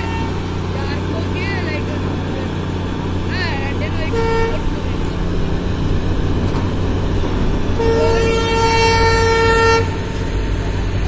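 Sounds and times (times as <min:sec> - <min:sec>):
locomotive horn blast: 0:00.0 - 0:02.6, 0:03.2 - 0:05.4, 0:07.4 - 0:10.9
low engine rumble: 0:00.0 - 0:11.0.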